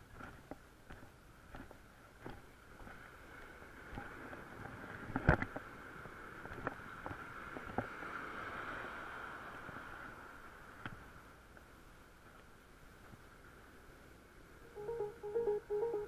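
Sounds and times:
surf washing over sand: 0:02.7 - 0:14.8.

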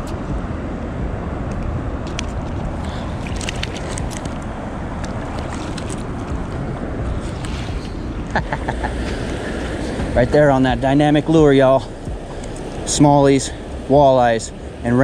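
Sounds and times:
river rippling: 0:00.0 - 0:15.0
wind rumble on microphone: 0:00.0 - 0:15.0.

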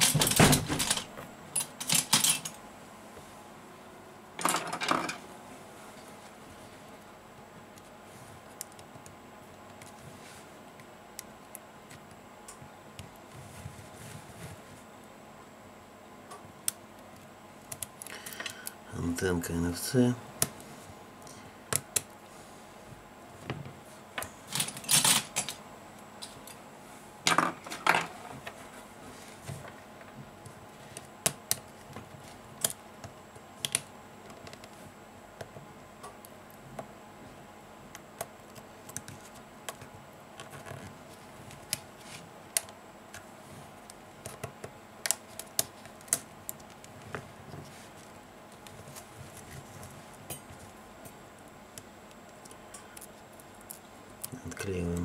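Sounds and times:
scraping rustles: 0:13.3 - 0:14.9.

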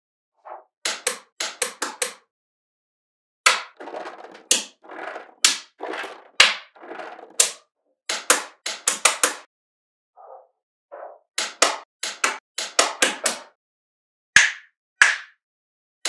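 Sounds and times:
balls rolling with scraping rattles: 0:03.6 - 0:09.5.

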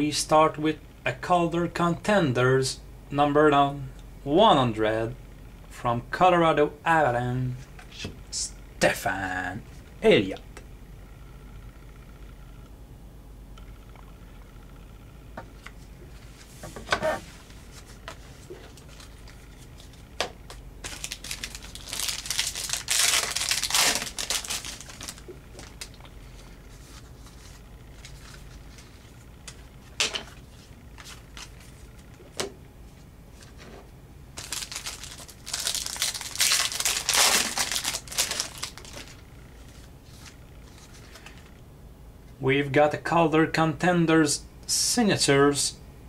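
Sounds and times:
trading cards rustling: 0:17.2 - 0:32.4, 0:34.4 - 0:41.5.

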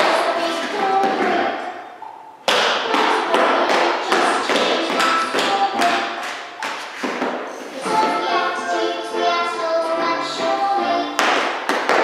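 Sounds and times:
recorded music: 0:07.4 - 0:12.0.

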